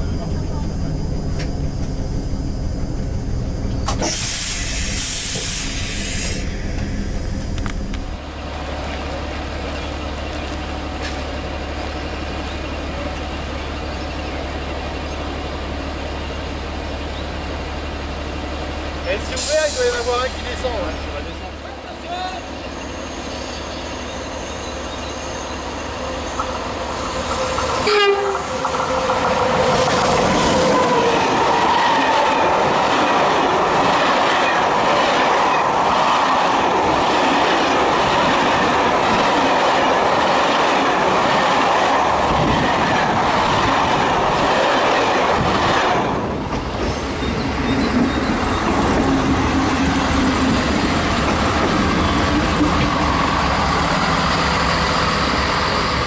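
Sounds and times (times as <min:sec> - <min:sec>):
diesel railcar running: 0:00.0 - 0:56.0.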